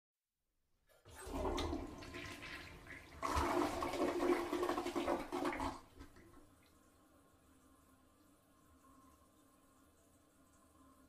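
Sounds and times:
toilet flushing: 0:00.9 - 0:06.8.

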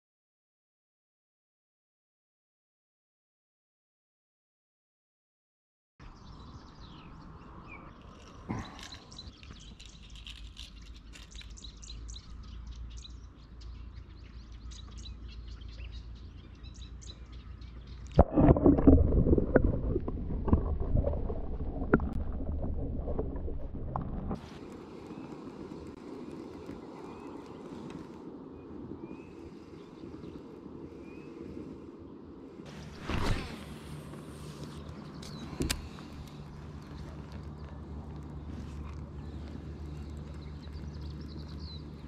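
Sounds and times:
birds singing: 0:06.0 - 0:18.2, 0:24.5 - 0:33.6, 0:34.4 - 0:42.0
faint low rumble: 0:15.5 - 0:42.0
muffled underwater water rush: 0:18.1 - 0:30.4.

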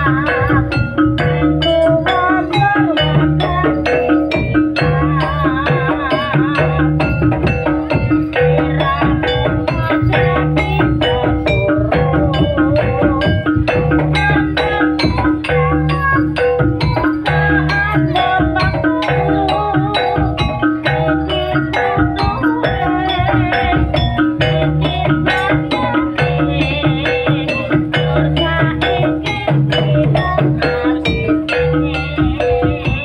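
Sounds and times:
gamelan ensemble playing: 0:00.0 - 0:33.0
mallet percussion melody: 0:00.0 - 0:33.0.

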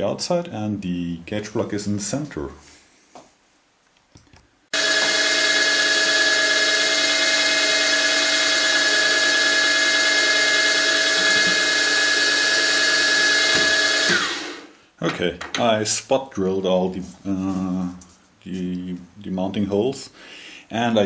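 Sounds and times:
drill motor whining: 0:04.7 - 0:14.7
drill cutting into metal: 0:04.8 - 0:14.7.

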